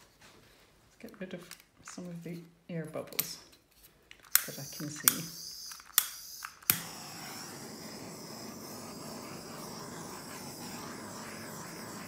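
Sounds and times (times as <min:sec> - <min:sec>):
butane torch igniter clicks: 0:04.3 - 0:07.3
torch flame hissing: 0:04.5 - 0:12.0.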